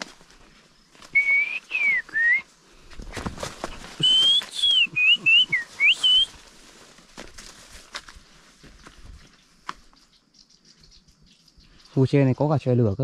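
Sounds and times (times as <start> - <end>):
footsteps: 0.0 - 10.0
rustling: 0.0 - 10.0
person whistling sliding notes: 1.1 - 2.4, 4.0 - 6.4.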